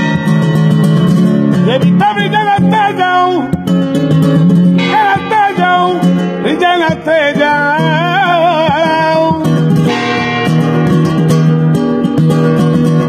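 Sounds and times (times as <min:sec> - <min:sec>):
strummed acoustic guitar: 0:00.0 - 0:13.0
man singing flamenco: 0:01.5 - 0:04.2, 0:04.8 - 0:09.9.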